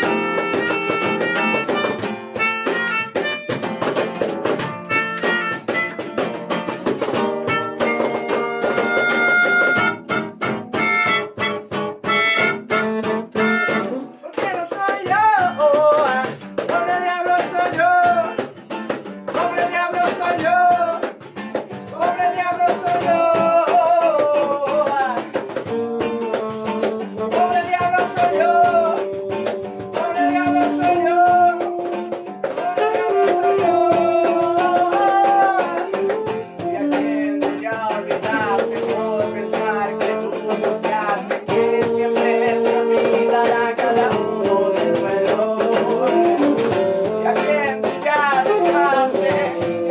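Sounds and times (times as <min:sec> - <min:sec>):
saxophone: 0:00.0 - 0:03.7, 0:04.8 - 0:06.3, 0:07.2 - 0:14.2, 0:25.2 - 0:49.9
melodica: 0:00.0 - 0:14.3, 0:25.4 - 0:49.9
acoustic guitar: 0:00.0 - 0:49.9.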